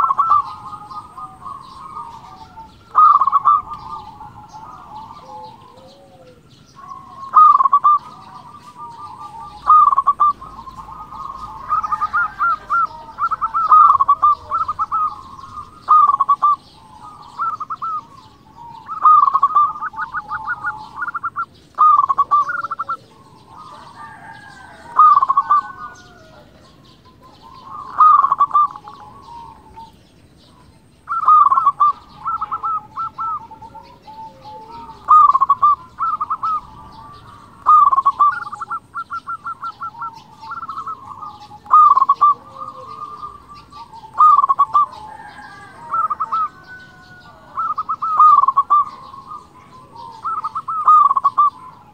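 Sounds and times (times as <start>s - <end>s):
dove cooing: 0.0s - 51.9s.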